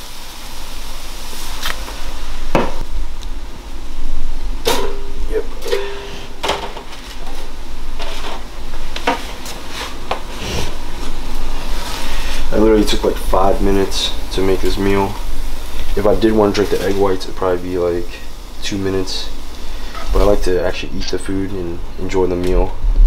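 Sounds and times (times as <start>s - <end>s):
pans and dishes clattering: 4.6s - 10.3s.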